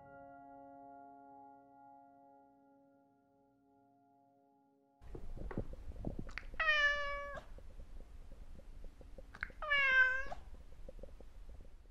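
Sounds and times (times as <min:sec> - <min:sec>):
low rumble: 0:05.0 - 0:11.9
cat meowing: 0:06.4 - 0:07.5, 0:09.4 - 0:10.5.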